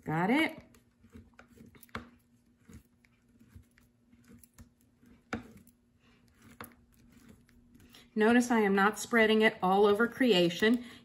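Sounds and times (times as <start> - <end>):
ink knife scraping and tapping: 1.0 - 7.5.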